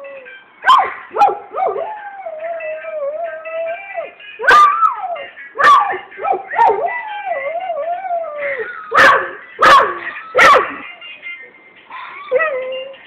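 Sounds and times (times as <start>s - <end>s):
dog yelping: 0.6s - 8.0s, 8.9s - 10.8s.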